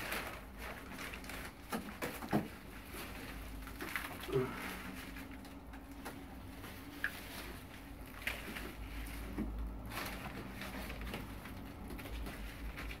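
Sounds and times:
low steady hum: 0:00.0 - 0:13.0
onion stalks rustling on newspaper: 0:00.0 - 0:13.0.

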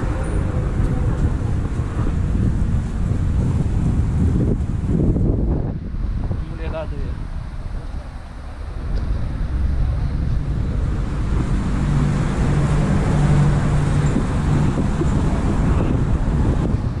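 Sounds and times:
wind rumbling on microphone: 0:00.0 - 0:17.0
vehicle driving by: 0:08.5 - 0:17.0.

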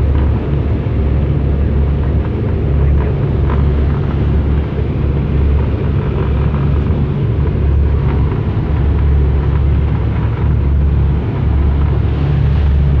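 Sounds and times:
boat engines droning: 0:00.0 - 0:13.0
rush of wind and water: 0:00.0 - 0:13.0.

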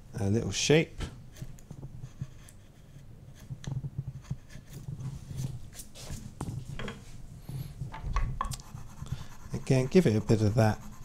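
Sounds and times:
gouge scraping wood: 0:01.3 - 0:05.5, 0:08.6 - 0:11.0.

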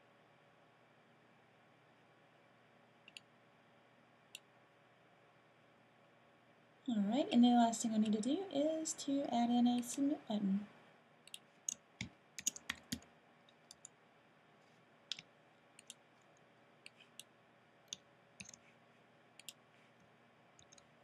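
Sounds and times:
mouse clicks: 0:03.1 - 0:03.3, 0:11.2 - 0:14.0, 0:15.1 - 0:16.0, 0:17.9 - 0:18.6, 0:19.4 - 0:19.6
keyboard keystrokes: 0:11.3 - 0:13.0.

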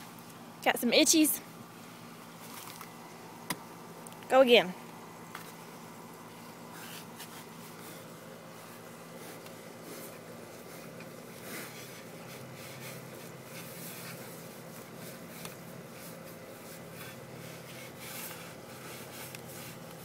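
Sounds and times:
handle rasping over bristly hide: 0:06.7 - 0:20.0.

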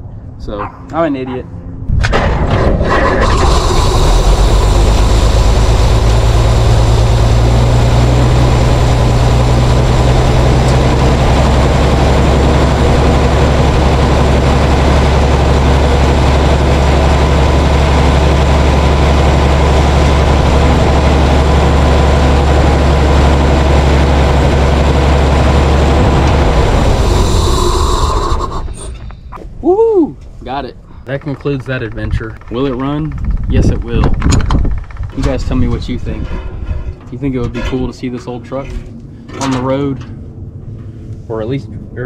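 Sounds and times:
fire truck engine idling: 0:03.5 - 0:28.8.

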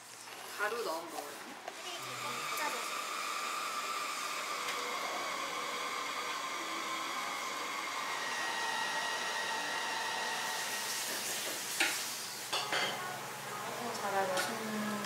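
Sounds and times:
small electric motor whirring: 0:01.7 - 0:11.6.

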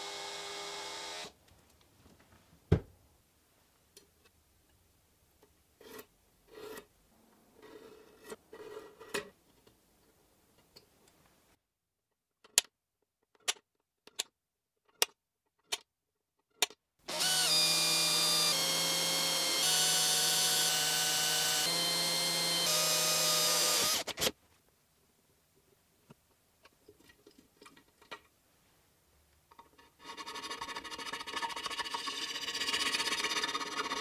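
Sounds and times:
cordless drill drilling into metal: 0:00.0 - 0:01.4, 0:17.1 - 0:24.3.

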